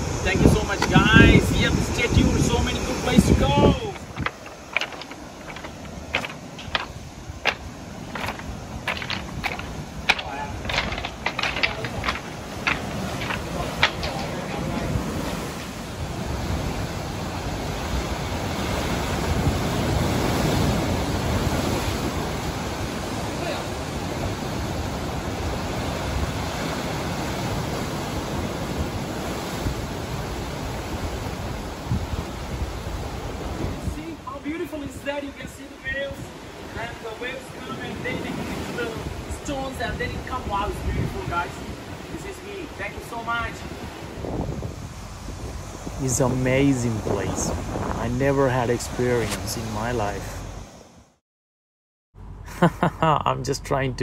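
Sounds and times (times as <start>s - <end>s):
sea surf breaking on rocks: 0.0s - 50.8s
footsteps on pebbles: 3.9s - 14.4s.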